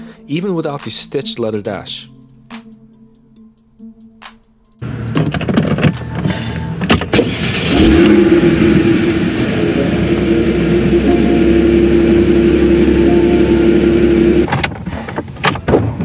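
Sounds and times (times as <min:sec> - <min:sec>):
car engine starting and idling: 0:04.8 - 0:15.6.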